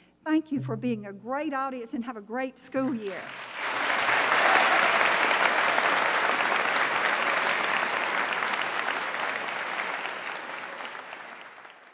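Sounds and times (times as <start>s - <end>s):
audience applauding: 2.9s - 11.9s.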